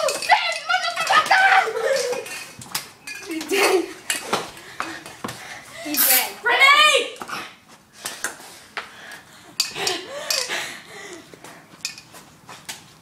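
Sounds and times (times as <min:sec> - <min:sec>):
objects knocking and clattering: 0:00.0 - 0:04.6, 0:11.8 - 0:12.1.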